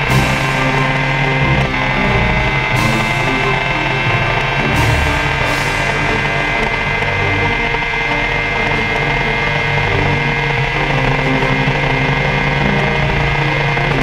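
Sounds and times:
motorcycle engine at full speed: 0:00.0 - 0:14.0.

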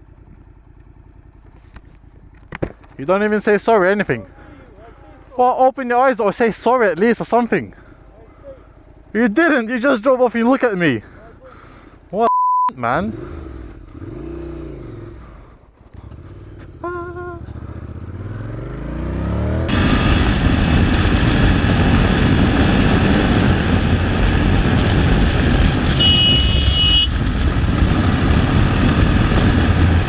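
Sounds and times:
motorcycle engine: 0:00.0 - 0:03.1, 0:12.8 - 0:30.0
wind rush: 0:19.6 - 0:30.0.

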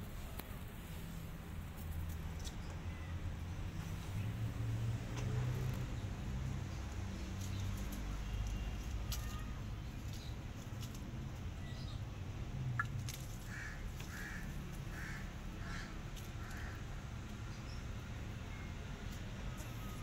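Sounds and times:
crow cawing: 0:13.4 - 0:16.8.

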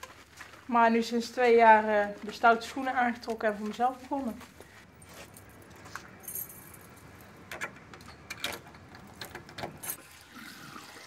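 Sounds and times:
keys jingling in a lock: 0:05.1 - 0:10.0.

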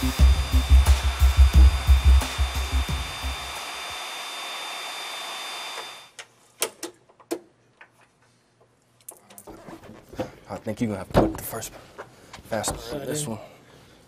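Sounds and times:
music with low beat: 0:00.0 - 0:03.7
jet engine roaring with whine: 0:00.2 - 0:06.1.

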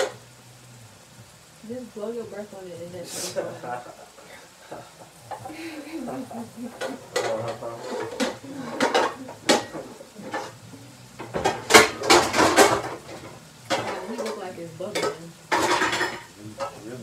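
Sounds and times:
meat sizzling in a frying pan: 0:00.0 - 0:17.0
metal cookware clinking: 0:03.6 - 0:10.6, 0:11.2 - 0:16.9.

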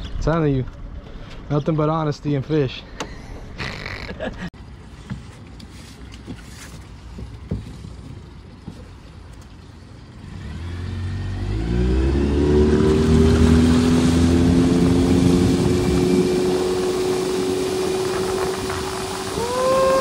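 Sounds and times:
water rushing past hull: 0:04.7 - 0:20.0
outboard motor revving: 0:09.7 - 0:20.0.

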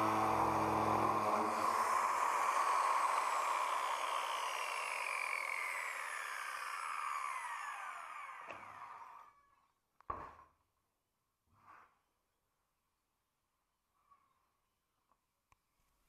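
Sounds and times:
power tool winding down: 0:00.0 - 0:09.6.

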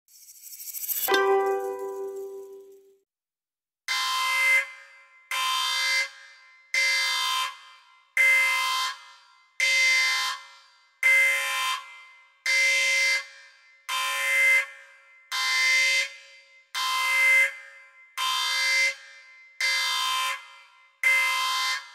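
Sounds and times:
pulsing synthesized electronic tone: 0:00.1 - 0:02.8.

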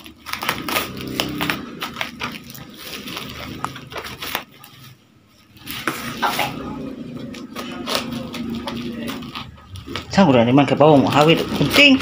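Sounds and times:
bubble wrap crackling: 0:00.0 - 0:12.0.

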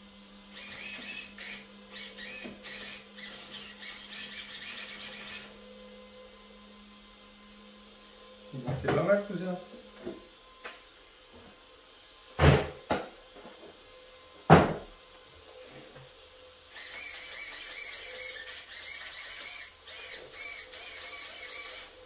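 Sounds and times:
steering servo whining: 0:00.5 - 0:08.6, 0:16.2 - 0:22.0.

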